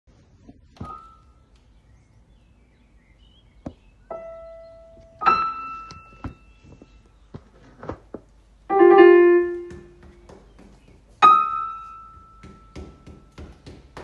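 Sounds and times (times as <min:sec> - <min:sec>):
piano notes ringing: 0:04.0 - 0:07.0, 0:08.7 - 0:10.0, 0:11.2 - 0:13.4.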